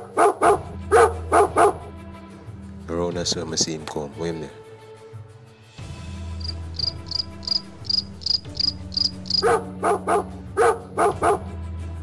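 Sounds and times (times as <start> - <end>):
dog barking: 0.0 - 1.9, 9.3 - 11.6
cricket chirping: 6.4 - 9.5.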